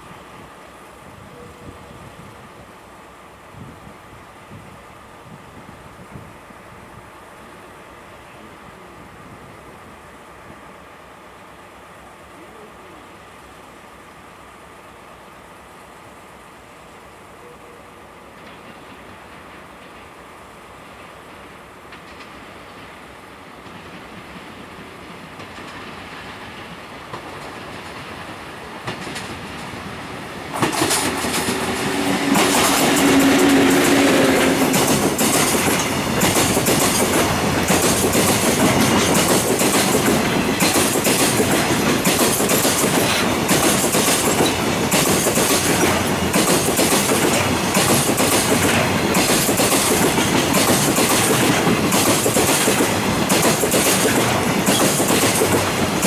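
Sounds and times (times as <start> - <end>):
electric locomotive humming: 0.0 - 56.0
train wheels clattering: 21.9 - 23.0, 23.6 - 29.8, 30.4 - 56.0.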